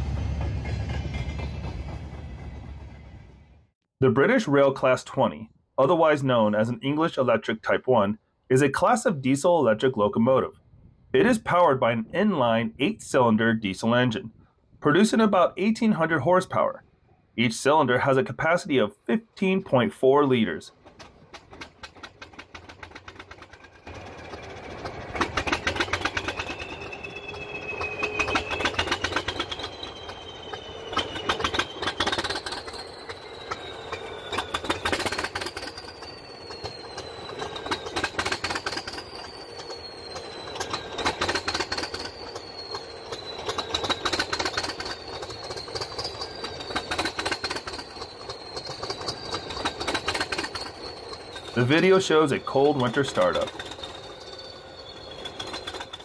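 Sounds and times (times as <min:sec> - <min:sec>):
diesel locomotive engine running: 0:00.0 - 0:56.0
high whistle rising and falling: 0:24.5 - 0:56.0.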